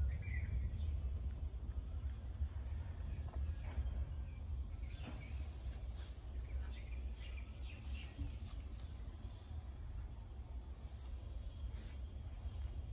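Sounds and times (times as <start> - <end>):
low steady rumble: 0.0 - 12.9.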